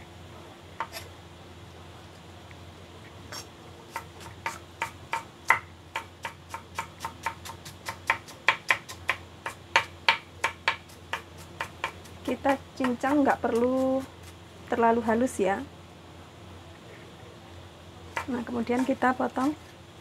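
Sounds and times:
knife chopping on wooden board: 3.3 - 12.1.

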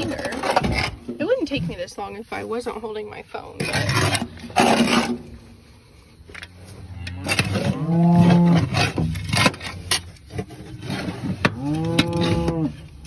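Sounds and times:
cow mooing: 6.8 - 8.9, 11.5 - 12.8.

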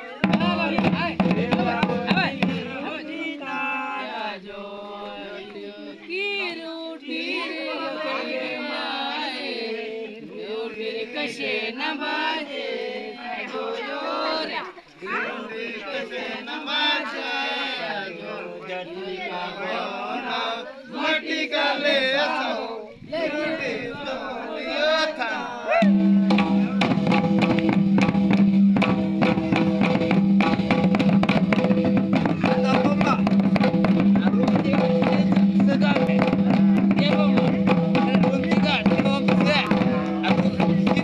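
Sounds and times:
barrel drums beaten fast: 0.2 - 3.0, 25.8 - 41.0
men chanting together: 0.2 - 6.1, 7.0 - 26.8
men singing: 0.2 - 27.5, 30.7 - 41.0.

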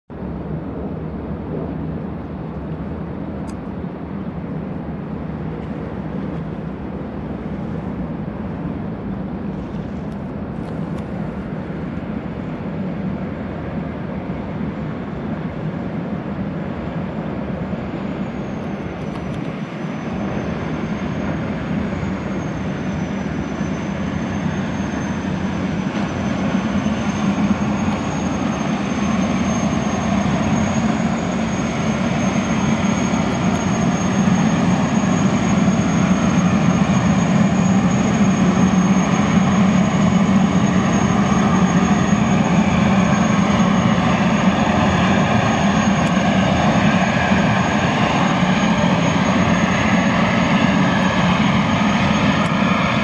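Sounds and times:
gas turbines rush and drone: 0.1 - 53.0
thin high whine: 16.4 - 53.0.

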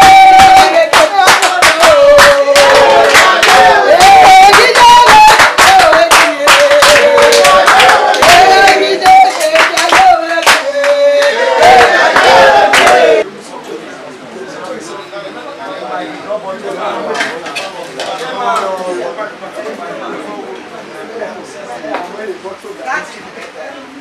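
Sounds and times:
hand clapping: 0.0 - 13.0
group singing: 0.0 - 13.2.

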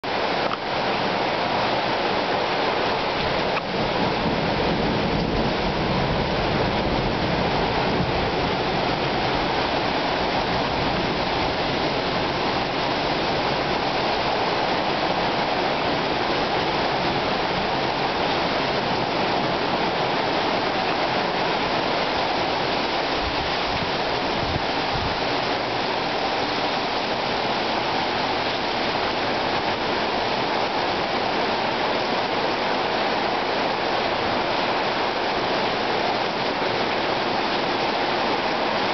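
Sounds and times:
heavy rain falling: 0.0 - 38.9.

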